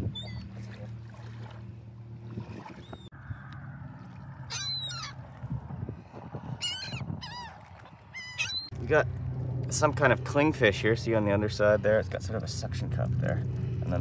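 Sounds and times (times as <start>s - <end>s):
low rumbling background: 0.0s - 14.0s
birds calling high cries: 4.5s - 5.2s, 6.6s - 8.8s
low steady hum: 8.7s - 14.0s.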